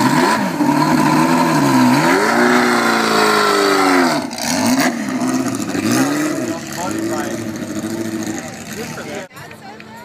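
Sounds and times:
car engine revving: 0.0s - 9.1s.

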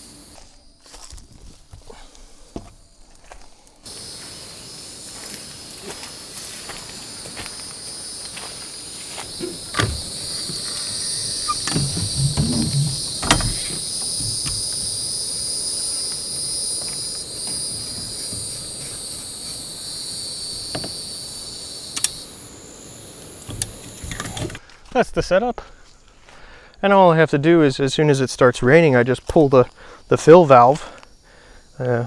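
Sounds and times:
high-pitched insect drone: 0.0s - 1.6s, 2.3s - 24.6s.

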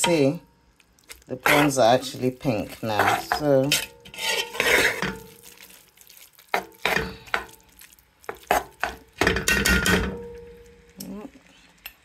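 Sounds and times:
spoon stirring and scraping in pot: 1.0s - 10.6s.

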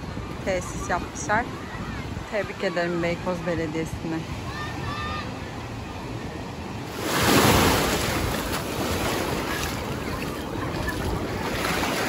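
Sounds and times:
wind rumbling on microphone: 0.0s - 4.6s, 5.9s - 12.0s
steady sea noise: 0.0s - 12.0s
wave breaking: 6.8s - 12.0s.

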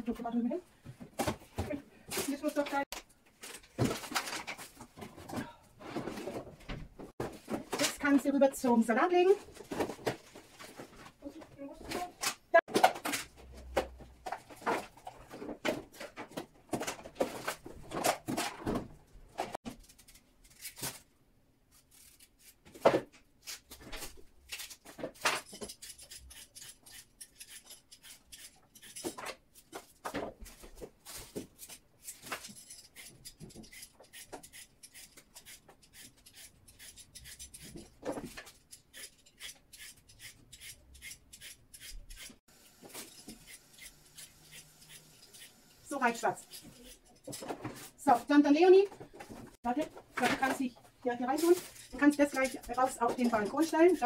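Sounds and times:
carrot peeling scrapes: 38.5s - 45.7s.

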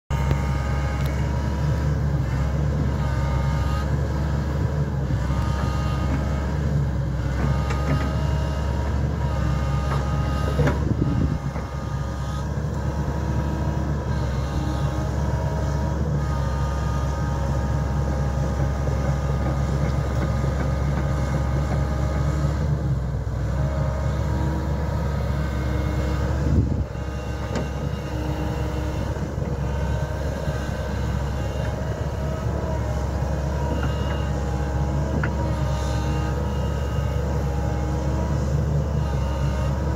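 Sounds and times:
diesel engine running: 0.0s - 39.9s
hydraulic whining tones: 5.0s - 22.6s.

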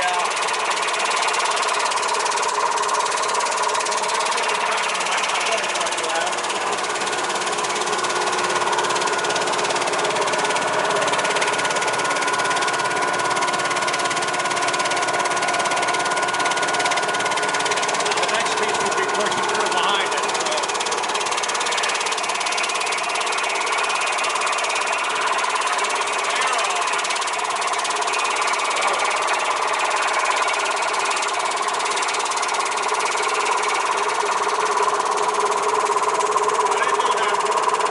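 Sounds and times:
high machine whine: 0.0s - 37.9s
slicing machine clatter: 0.0s - 37.9s.

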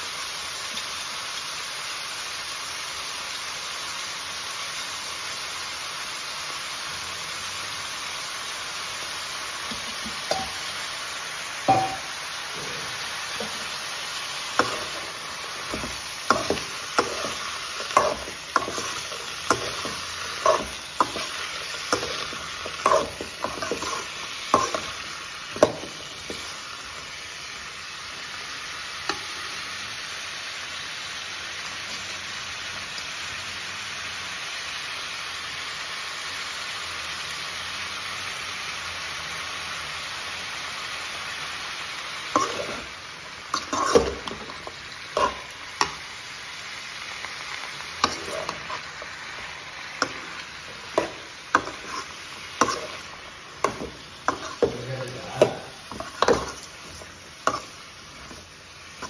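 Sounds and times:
vegetables sizzling in oil: 0.0s - 59.0s
steel spoon scraping a pan: 9.7s - 10.8s, 11.7s - 26.6s, 42.3s - 46.1s, 47.8s - 59.0s.

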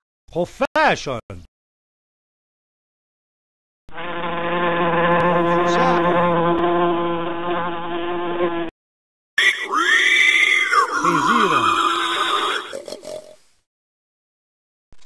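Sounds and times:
beetle buzzing in flight: 3.9s - 8.7s.

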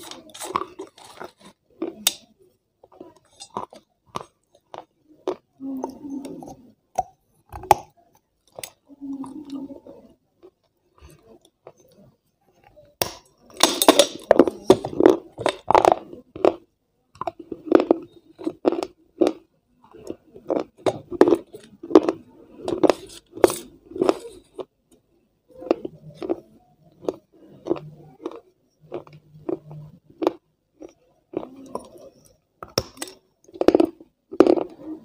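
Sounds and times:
crunching clay pot: 0.0s - 9.2s, 25.6s - 35.0s
chewing: 0.0s - 12.8s, 17.2s - 24.7s, 25.6s - 35.0s.

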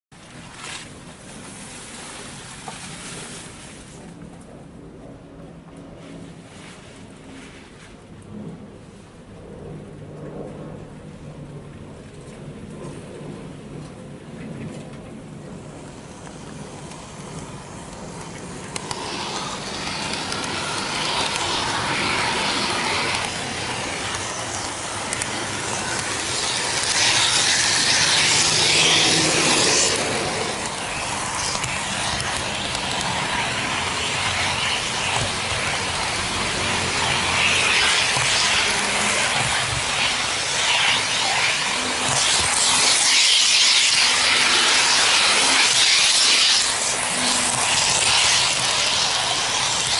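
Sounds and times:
model train wheels rattling on rail: 15.8s - 49.9s.

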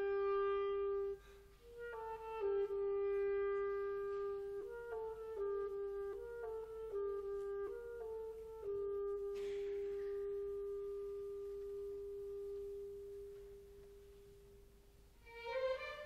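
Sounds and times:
clarinet long held note: 0.0s - 14.4s
orchestral strings: 15.2s - 16.0s.

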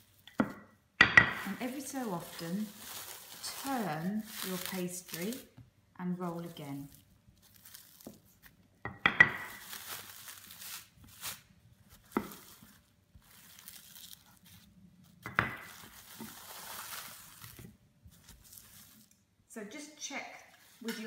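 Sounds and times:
cling film crinkling: 1.5s - 5.6s, 6.2s - 8.6s, 9.5s - 19.2s.

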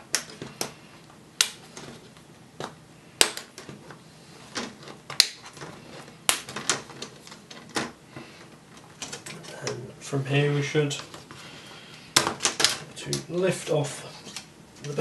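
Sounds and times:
plastic clips snapping: 1.4s - 1.9s, 2.6s - 3.8s, 4.6s - 7.9s.

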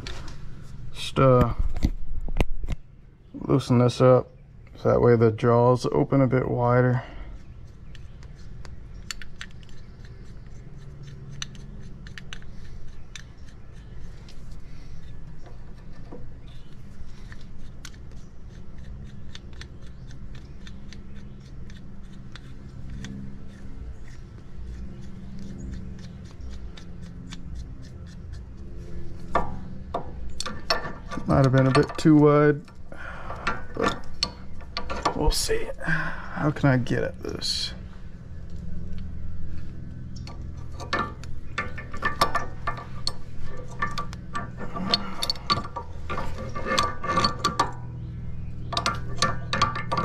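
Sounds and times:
low steady hum: 0.0s - 50.0s
metal tool screw clicking and scraping: 7.4s - 35.6s, 40.2s - 50.0s.

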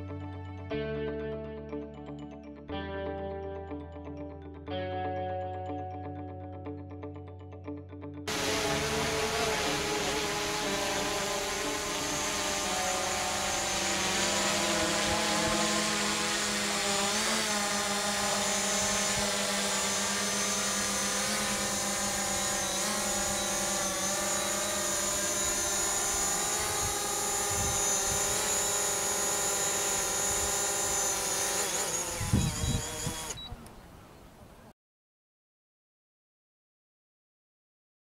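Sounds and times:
drone propellers whining: 8.3s - 33.7s.

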